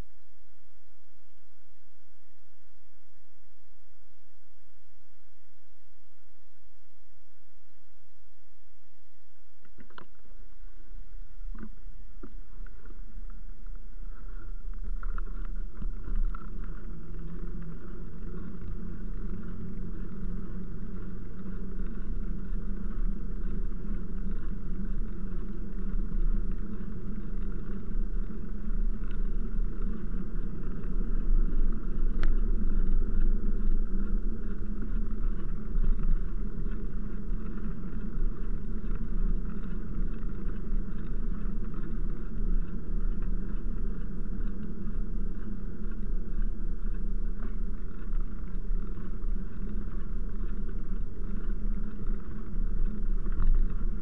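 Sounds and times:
bicycle tyres rolling on wet tarmac: 9.7s - 54.0s
wind buffeting microphone: 11.5s - 54.0s.

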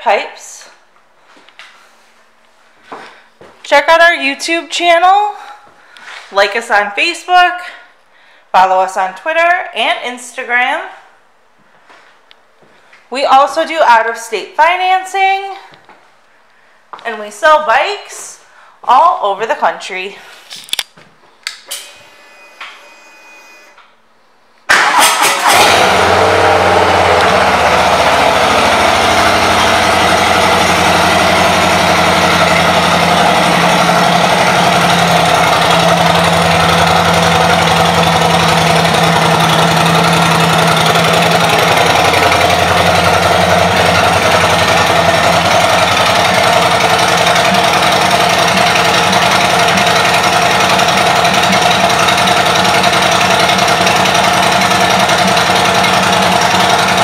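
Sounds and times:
motorcycle engine starting and idling: 24.7s - 57.0s.

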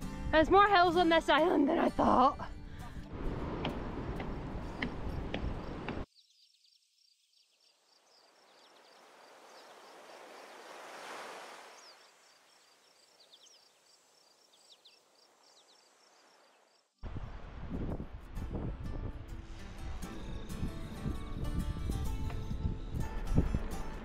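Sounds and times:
ocean waves breaking: 3.0s - 6.0s, 8.9s - 12.1s.

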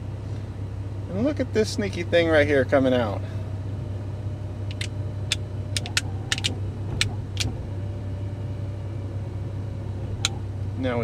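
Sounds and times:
diesel engine idling: 0.0s - 11.0s
faint steady motor whine: 0.0s - 11.0s
sharp clicks: 4.7s - 7.5s.

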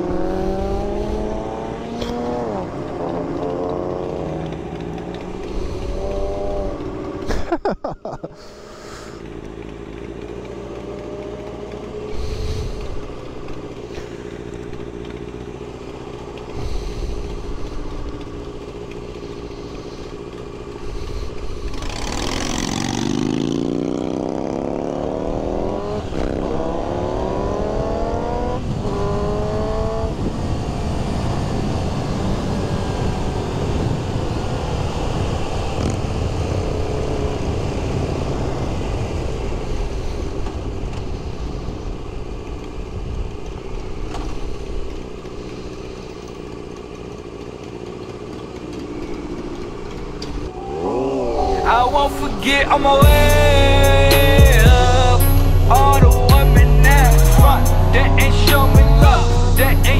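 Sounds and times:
motorcycle engine revving: 0.0s - 7.4s, 9.0s - 39.9s, 52.9s - 59.9s.

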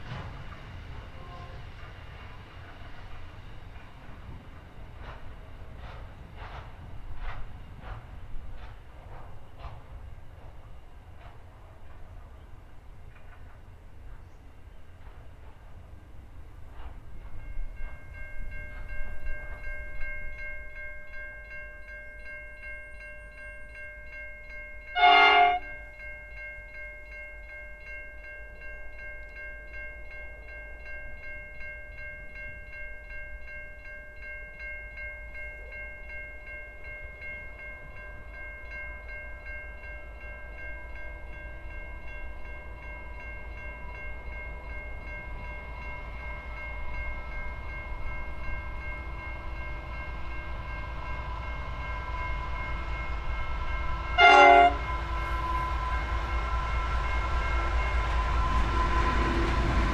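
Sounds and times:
train rumble: 0.0s - 59.9s
locomotive horn blast: 25.0s - 25.7s, 54.2s - 55.7s.

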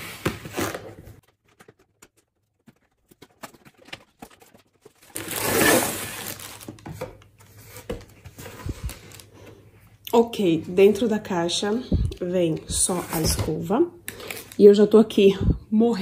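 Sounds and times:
plastic bag crinkling: 1.2s - 7.0s.

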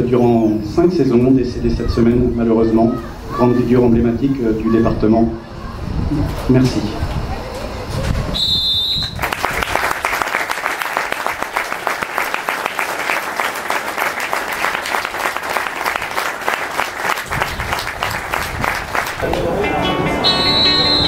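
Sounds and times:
crowd applauding: 9.0s - 21.0s.

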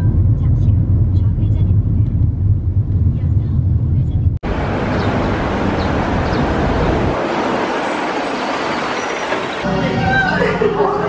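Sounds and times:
low engine rumble: 0.0s - 11.0s.

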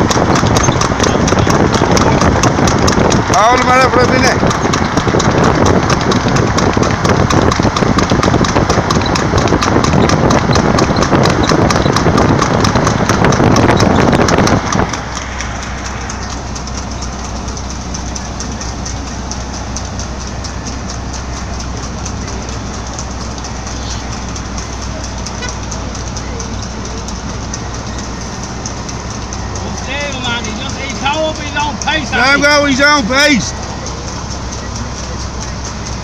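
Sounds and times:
wind noise: 0.0s - 17.1s
horse hooves on tarmac: 0.0s - 36.0s
road rumble: 0.0s - 36.0s.

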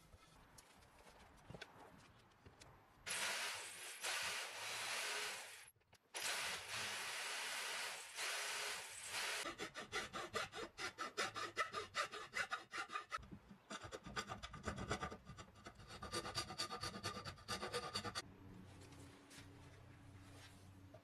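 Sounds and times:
file scraping wood: 9.4s - 18.2s.

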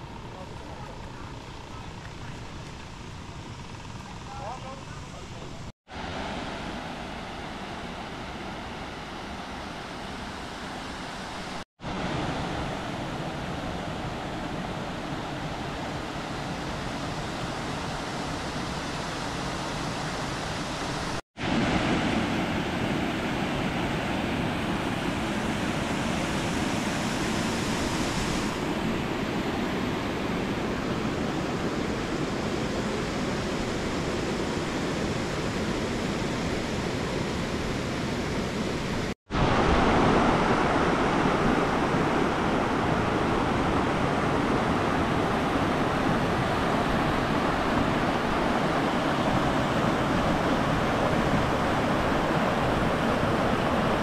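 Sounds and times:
water rushing over rocks: 39.3s - 54.0s.

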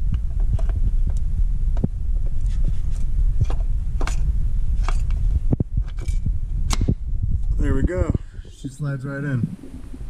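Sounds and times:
microphone handling rumble: 0.0s - 10.0s
light clicks and scrapes: 2.2s - 6.2s.

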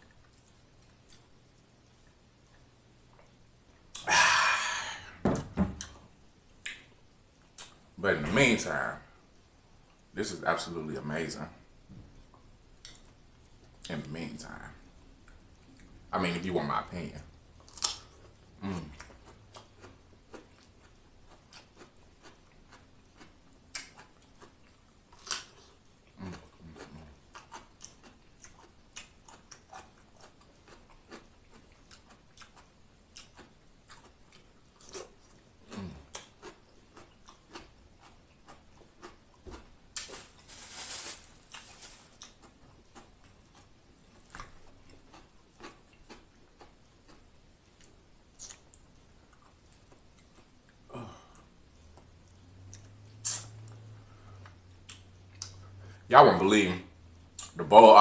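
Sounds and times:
chewing and crunching cucumber: 15.2s - 55.6s
wet mouth clicks: 48.4s - 48.8s, 52.7s - 53.8s, 54.4s - 55.6s.

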